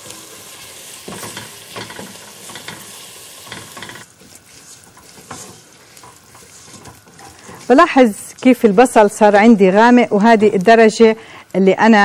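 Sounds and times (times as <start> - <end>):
stirring scrapes in a pot: 0.0 - 8.6
onions sizzling in oil: 0.0 - 11.0.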